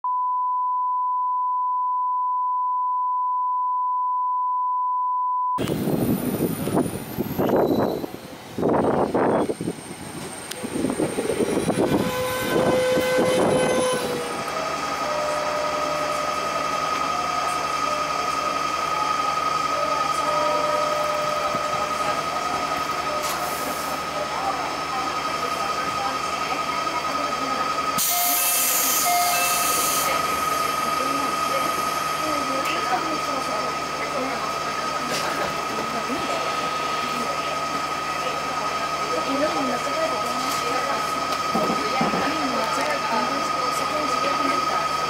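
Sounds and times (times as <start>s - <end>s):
steady test-tone beep: 0.0s - 5.6s
electric train pulling in: 5.6s - 45.0s
station platform noise: 5.6s - 45.0s.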